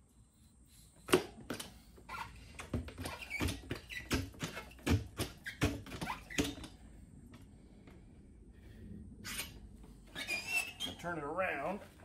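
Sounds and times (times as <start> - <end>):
short squeaks: 2.1 - 6.8, 9.2 - 11.3.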